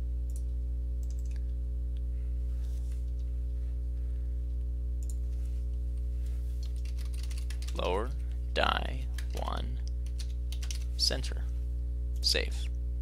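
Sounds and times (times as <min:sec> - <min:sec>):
steady low hum: 0:00.0 - 0:13.0
computer mouse clicks: 0:01.0 - 0:01.4, 0:05.0 - 0:05.2.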